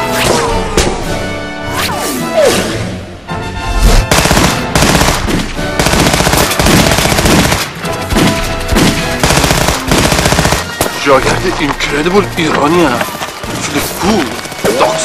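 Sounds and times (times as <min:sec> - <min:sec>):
machine gun firing bursts: 0:04.1 - 0:11.0.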